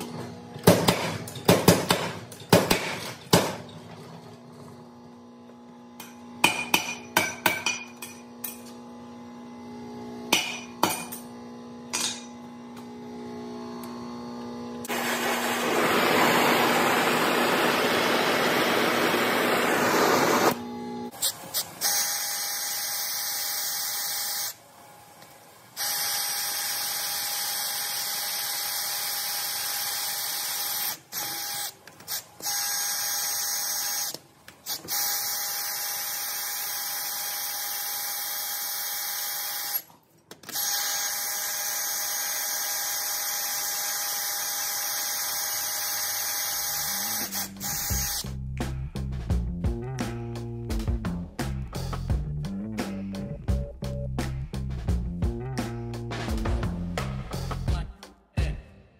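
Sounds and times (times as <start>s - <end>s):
oxy-acetylene torch hissing: 14.9s - 20.6s, 40.7s - 48.2s
power drill boring through steel: 25.8s - 31.7s, 32.4s - 39.9s, 40.5s - 48.2s.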